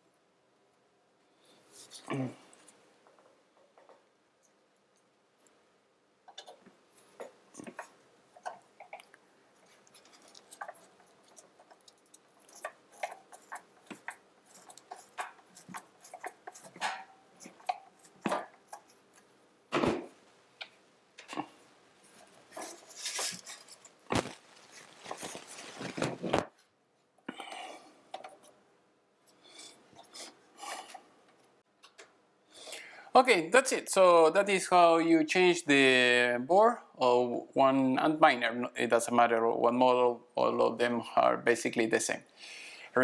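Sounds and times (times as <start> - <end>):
small metallic clicks and scrapes: 6.3 - 19.3.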